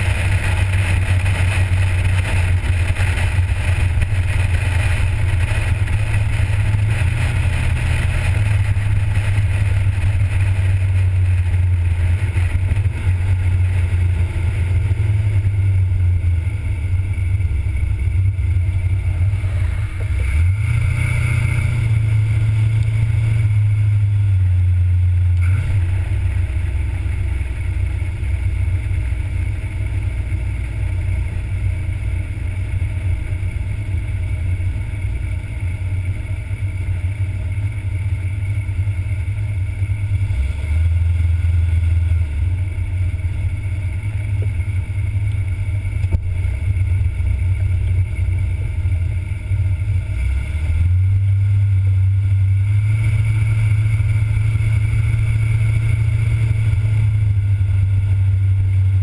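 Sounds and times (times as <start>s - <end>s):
car engine driving: 0.0s - 59.0s.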